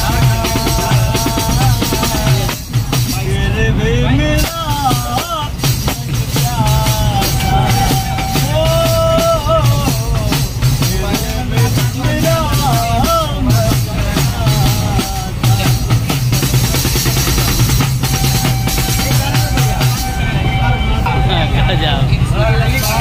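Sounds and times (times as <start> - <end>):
man singing: 0.0 - 17.3.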